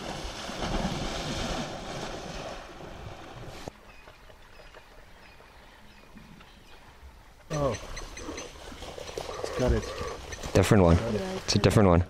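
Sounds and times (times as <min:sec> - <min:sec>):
hippo splashing through water: 0:00.0 - 0:05.4, 0:07.8 - 0:11.7.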